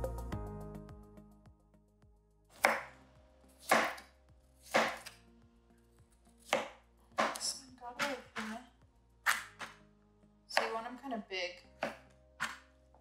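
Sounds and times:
knife cutting cucumber on plastic mat: 4.6s - 5.2s, 6.5s - 8.5s.

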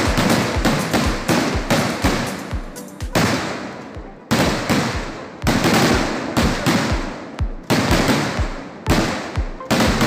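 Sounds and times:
firework shots banging: 0.0s - 10.0s.

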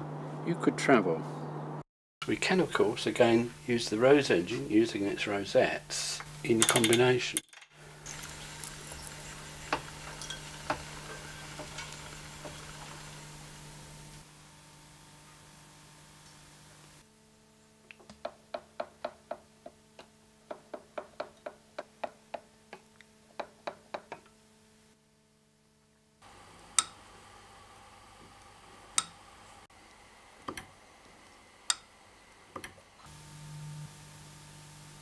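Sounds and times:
lathe cutting metal clicks: 6.2s - 7.7s.

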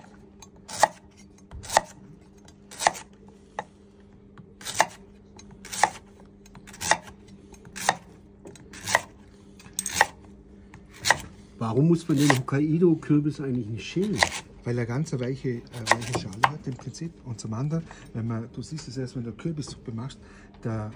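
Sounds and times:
knife slicing pumpkin: 0.7s - 2.0s, 2.7s - 3.1s, 4.6s - 5.0s, 5.6s - 8.1s, 8.7s - 9.2s, 9.8s - 10.2s, 10.9s - 11.3s, 12.0s - 12.6s, 13.9s - 14.5s, 15.7s - 16.8s.

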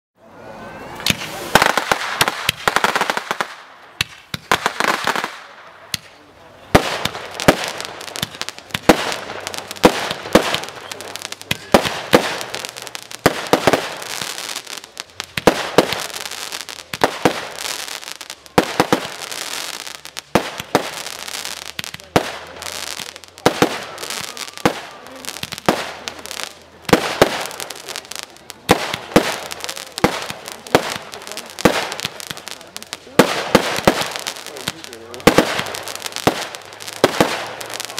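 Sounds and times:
crackling firework stars: 0.3s - 37.9s
firework launch hissing: 0.9s - 5.5s
firework bangs: 0.9s - 37.9s.

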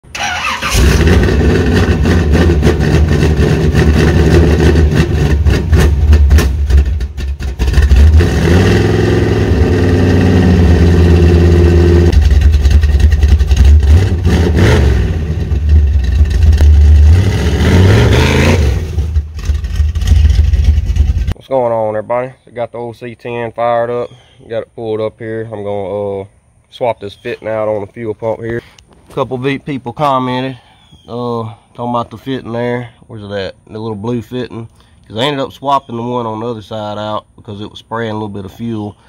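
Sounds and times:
vee eight engine revving: 0.1s - 21.4s.

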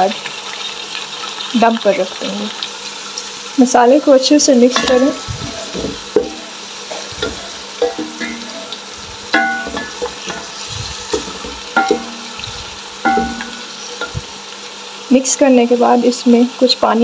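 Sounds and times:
frying sizzle: 0.0s - 17.0s
wooden spoon scraping metal pot: 4.7s - 14.3s.

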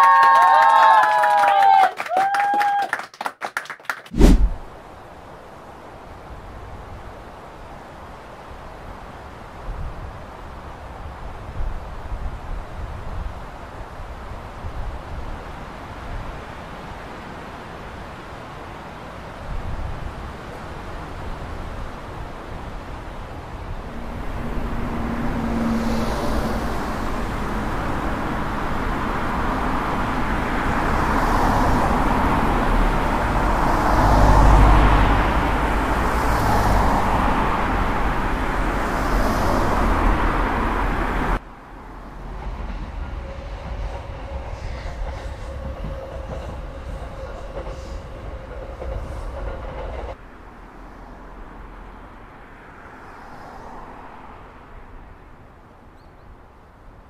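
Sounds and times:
street ambience: 3.6s - 57.0s
passing vehicles rushing: 4.1s - 5.0s, 19.5s - 57.0s.

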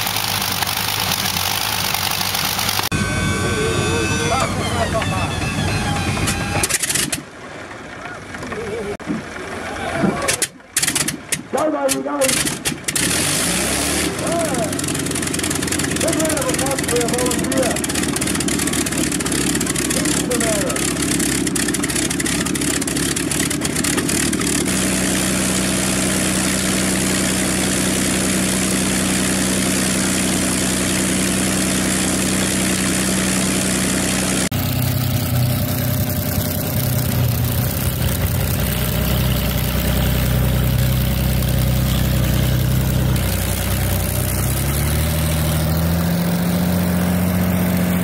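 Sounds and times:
aircraft engine droning: 0.0s - 6.8s, 24.7s - 48.0s.

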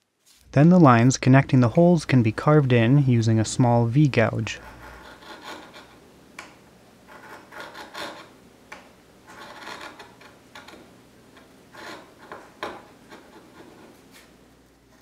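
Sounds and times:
gouge scraping through wood: 4.6s - 6.0s, 7.1s - 8.3s, 9.3s - 10.4s, 11.7s - 14.0s.

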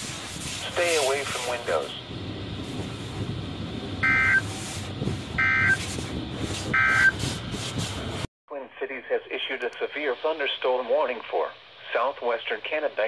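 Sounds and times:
warbling data bursts: 4.0s - 4.5s, 5.4s - 5.8s, 6.8s - 7.2s.

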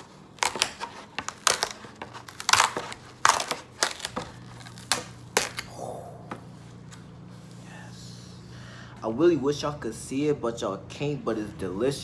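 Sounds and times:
styrofoam crunching and creaking: 0.0s - 5.7s.

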